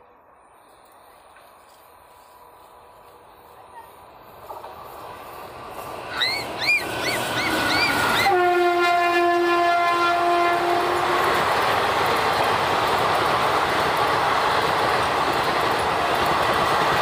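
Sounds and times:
train rushing past: 0.0s - 17.0s
locomotive air horn: 7.6s - 11.4s.

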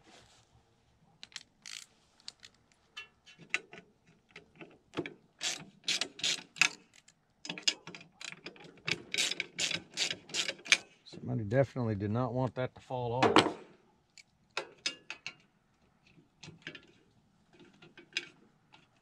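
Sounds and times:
hand tool clicks and scrapes on metal: 1.2s - 10.9s, 14.1s - 15.5s.

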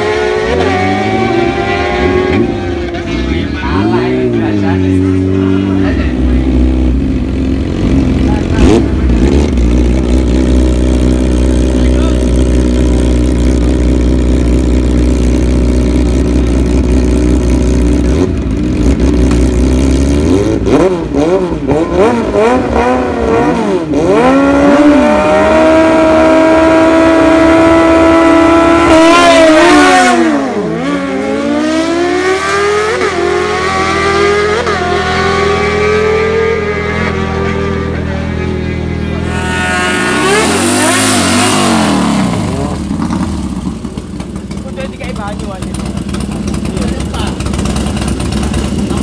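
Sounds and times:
motorcycle accelerating with upshifts: 0.0s - 49.0s
motorcycle engine revving: 0.0s - 49.0s
motorcycle engines idling: 2.4s - 21.8s, 35.9s - 49.0s.

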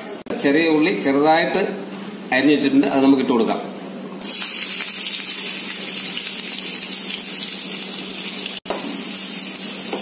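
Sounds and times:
shallots sizzling in hot oil: 4.2s - 10.0s.

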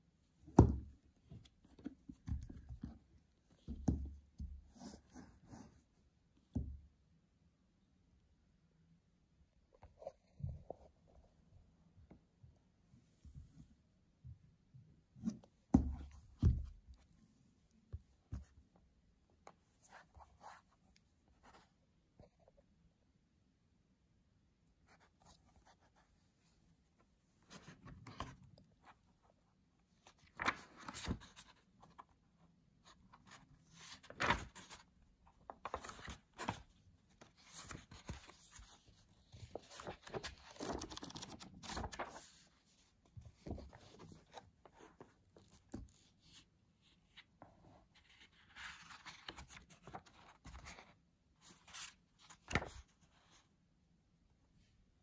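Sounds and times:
book pages turning and rustling: 27.4s - 29.2s, 30.0s - 32.2s, 32.8s - 53.5s.

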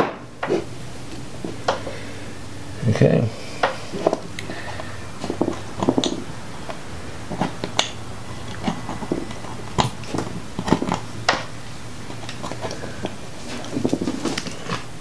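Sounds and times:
hands handling wires: 3.6s - 14.9s.

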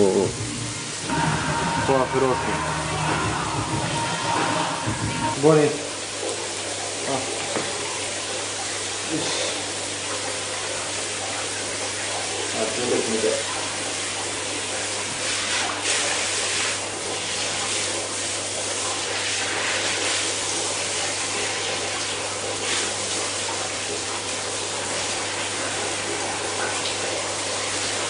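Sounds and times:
low hum: 0.0s - 6.0s
bath water running: 0.0s - 28.0s.

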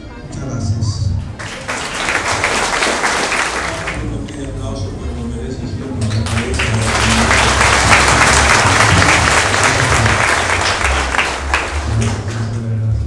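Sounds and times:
crowd applauding: 1.4s - 4.3s, 5.9s - 13.0s.

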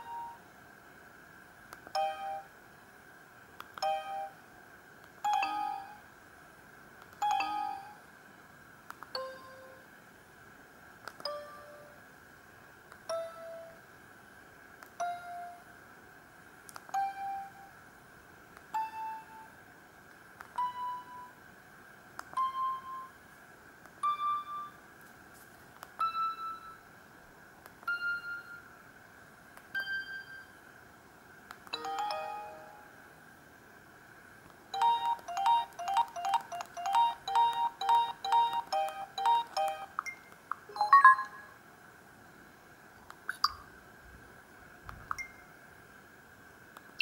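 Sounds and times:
click: 3.6s - 3.9s, 8.9s - 9.1s, 11.0s - 11.3s, 16.7s - 16.9s, 31.5s - 31.8s
phone keypad beeps: 34.8s - 41.5s.

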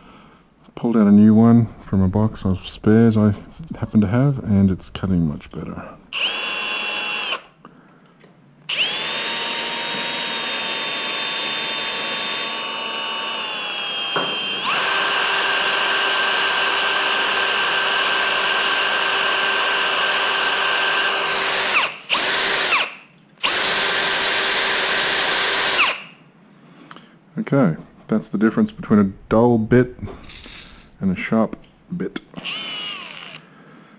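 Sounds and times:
cordless drill whining: 6.1s - 7.5s, 8.7s - 26.2s, 30.2s - 31.0s, 32.4s - 33.5s.

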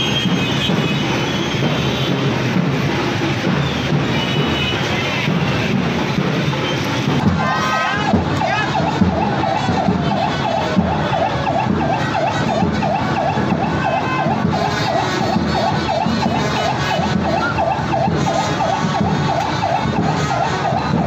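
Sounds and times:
large crowd noise: 0.0s - 21.0s
siren wailing up and down: 7.3s - 21.0s.

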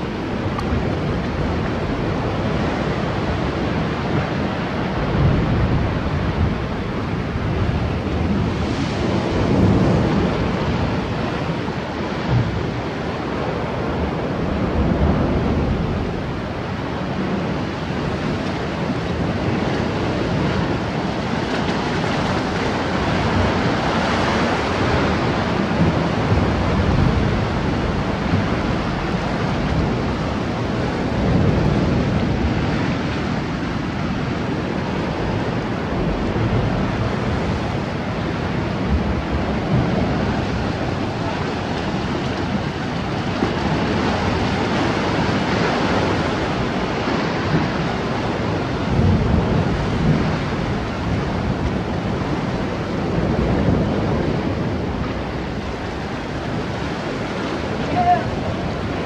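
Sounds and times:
wind buffeting microphone: 0.0s - 59.0s
surf breaking against rocks: 17.5s - 59.0s.

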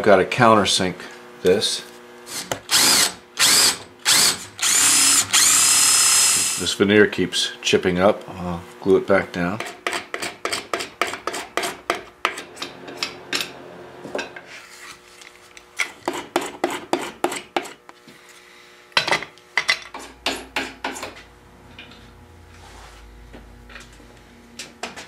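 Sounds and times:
hand file rasping wood: 9.6s - 12.5s, 16.0s - 17.8s.

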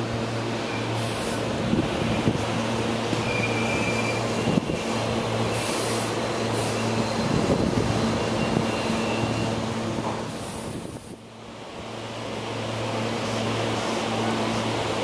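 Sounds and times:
electric train rumbling: 0.0s - 15.0s.

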